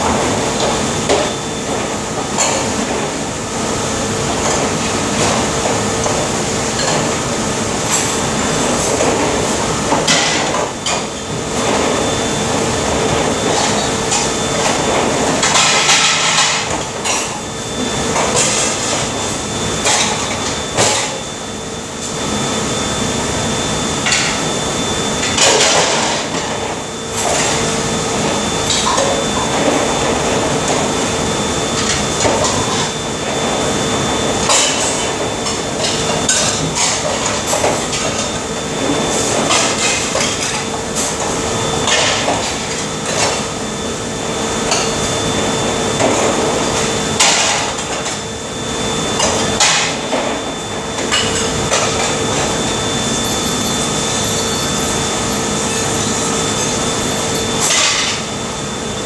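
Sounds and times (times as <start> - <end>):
machine hum: 0.0 - 59.0
dishes and utensils clattering: 53.2 - 58.2.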